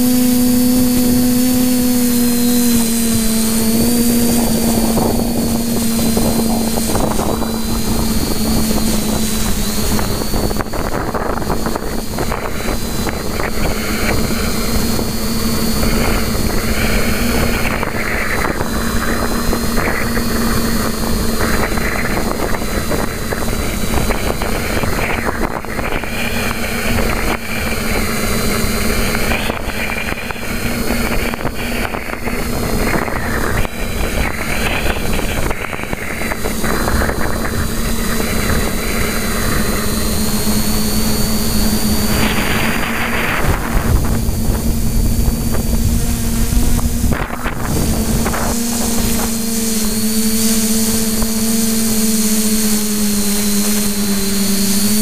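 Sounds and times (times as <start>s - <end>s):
quadcopter motors droning: 0.0s - 55.0s
wind noise on microphone: 0.0s - 55.0s.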